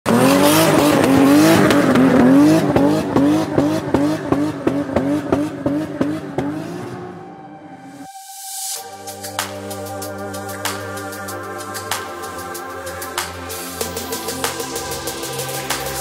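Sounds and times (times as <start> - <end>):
car engine revving: 0.0 - 7.9.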